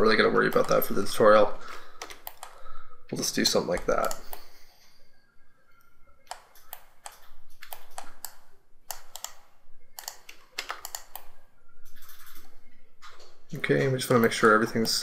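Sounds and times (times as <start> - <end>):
keyboard and mouse clicking: 0.4 - 1.0, 1.9 - 2.7, 3.7 - 4.9, 5.8 - 13.3.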